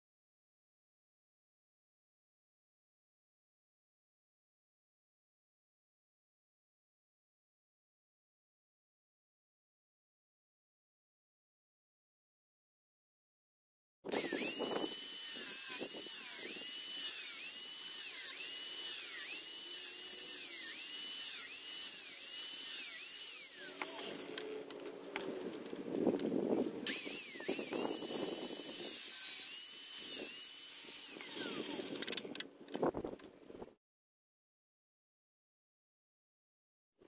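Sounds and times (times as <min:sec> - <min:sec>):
angle grinder whining on steel: 0:14.1 - 0:24.8, 0:26.8 - 0:32.2.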